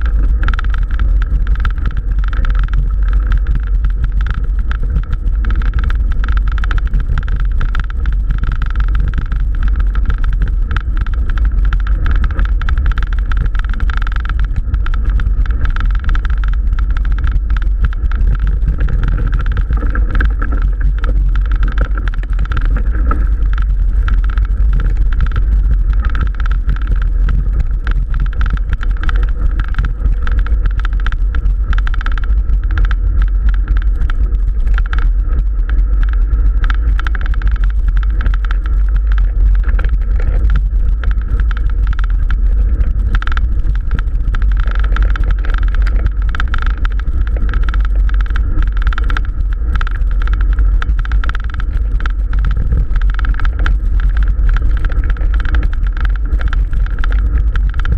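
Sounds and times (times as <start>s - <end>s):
bike tyres rumbling on dirt: 0.0s - 57.9s
steady whine: 0.0s - 57.9s
wind buffeting microphone: 0.0s - 57.9s.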